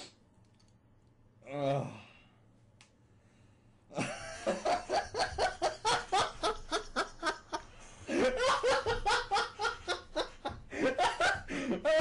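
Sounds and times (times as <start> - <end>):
person laughing: 3.9 - 12.0.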